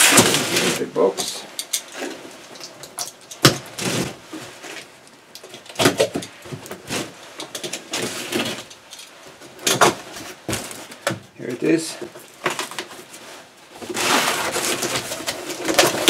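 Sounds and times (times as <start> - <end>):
cardboard box flaps scraping: 13.8 - 15.9.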